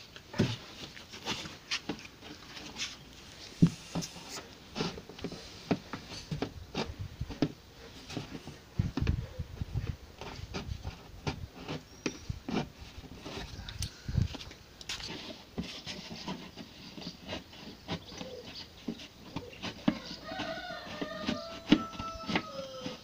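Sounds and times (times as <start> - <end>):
knife scraping plastic: 0.3 - 13.7, 14.4 - 23.0.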